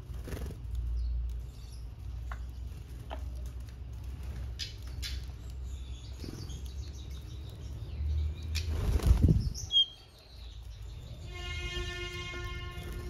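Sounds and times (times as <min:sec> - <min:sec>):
bird wings fluttering: 0:00.0 - 0:01.5, 0:08.6 - 0:09.6.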